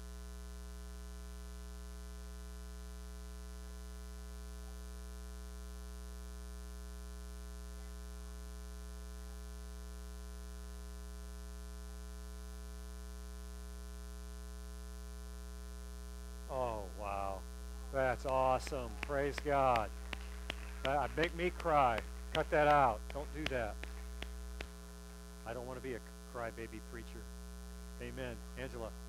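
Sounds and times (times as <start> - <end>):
electrical mains hum: 15.5 - 29.0.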